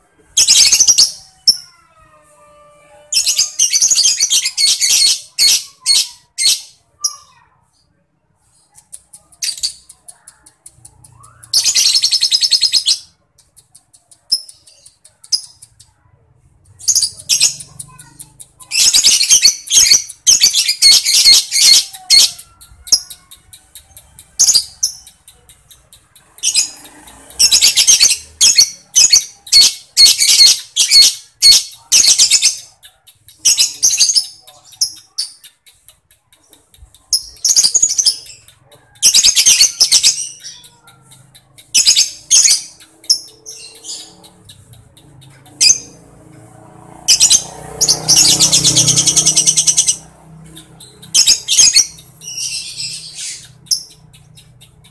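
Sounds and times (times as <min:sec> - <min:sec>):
lovebird shrill chattering: 0:16.8 - 0:36.0, 0:36.7 - 0:46.0, 0:47.1 - 0:54.9.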